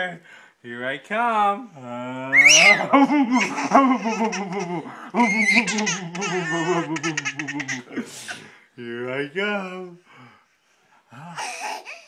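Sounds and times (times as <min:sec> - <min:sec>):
man's playful monster voice: 0:01.8 - 0:08.1
baby laughing and squealing: 0:02.4 - 0:08.0.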